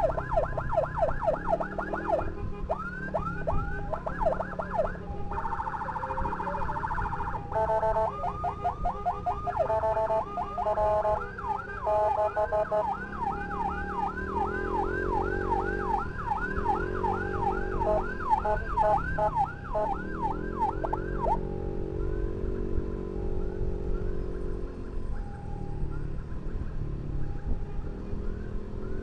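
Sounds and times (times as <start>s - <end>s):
fast yelp siren: 0.0s - 24.4s
motorcycle engine: 0.0s - 24.9s
road noise: 0.0s - 29.0s
wailing siren: 0.0s - 29.0s.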